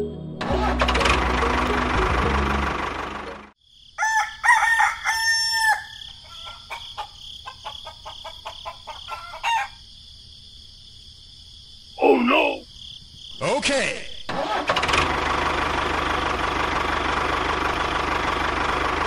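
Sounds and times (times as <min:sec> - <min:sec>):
loud motor running: 0:00.6 - 0:03.5
insects chirring: 0:03.6 - 0:14.3
rooster crowing: 0:04.0 - 0:09.9.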